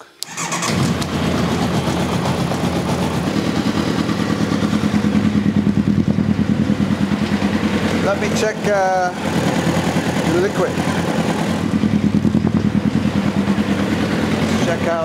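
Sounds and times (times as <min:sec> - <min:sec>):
race car engine running: 0:00.7 - 0:15.0.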